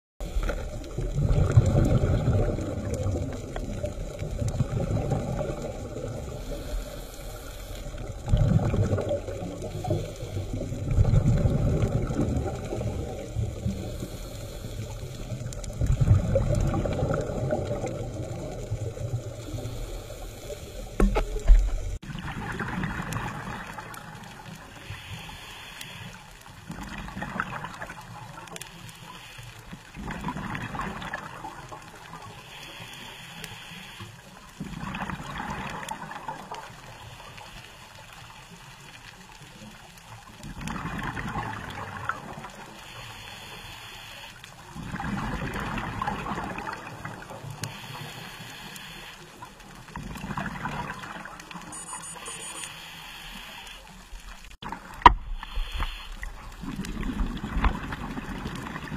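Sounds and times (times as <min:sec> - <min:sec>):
air bubbling underwater: 0:00.9 - 0:06.6, 0:08.2 - 0:13.8, 0:15.8 - 0:19.4.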